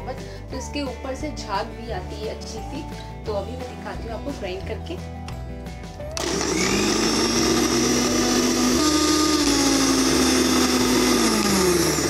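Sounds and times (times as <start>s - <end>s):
mixer grinder blending ice: 6.1s - 12.0s.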